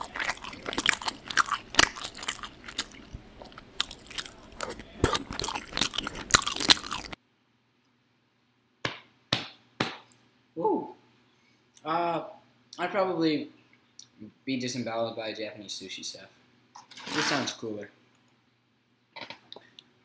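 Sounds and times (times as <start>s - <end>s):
crackling crunching clicks: 0.0s - 7.2s.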